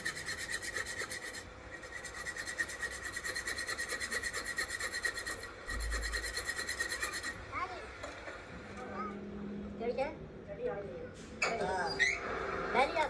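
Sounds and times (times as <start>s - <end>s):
metal rasping scrape: 0.0s - 7.4s.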